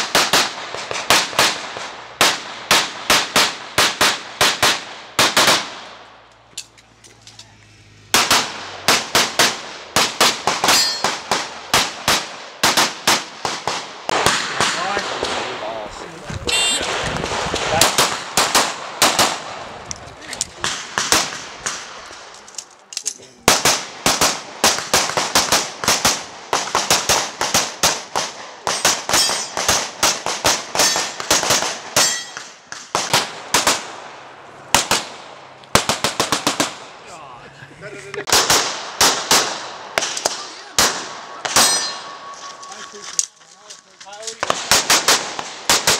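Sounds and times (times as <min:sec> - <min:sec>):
pistol shots: 0:00.0 - 0:05.9, 0:08.1 - 0:15.8, 0:16.4 - 0:19.7, 0:20.6 - 0:22.3, 0:23.5 - 0:34.0, 0:38.2 - 0:42.7, 0:44.4 - 0:45.9
short metallic ring: 0:10.7 - 0:11.1, 0:32.0 - 0:32.4, 0:41.6 - 0:42.7.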